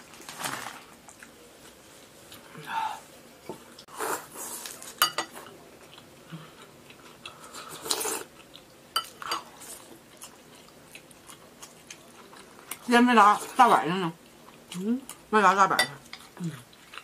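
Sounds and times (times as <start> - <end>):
soft eating noises: 0.0 - 17.0
metal spoons clinking on bowls: 5.0 - 5.4.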